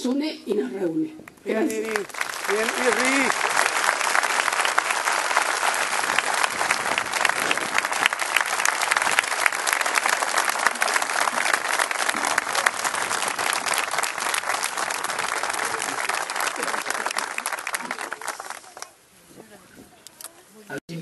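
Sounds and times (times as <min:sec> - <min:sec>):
crowd applauding: 0:01.5 - 0:19.0.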